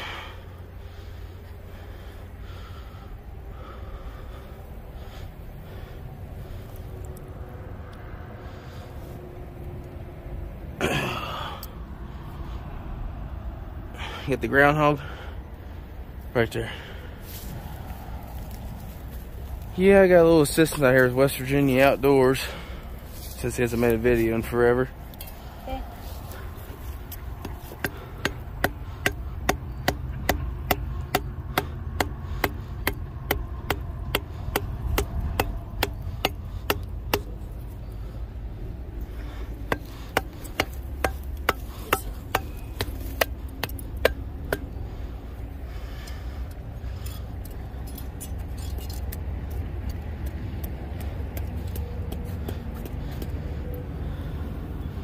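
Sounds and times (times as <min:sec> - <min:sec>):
stake hammered into ground: 0:27.4 - 0:37.4, 0:39.7 - 0:44.8.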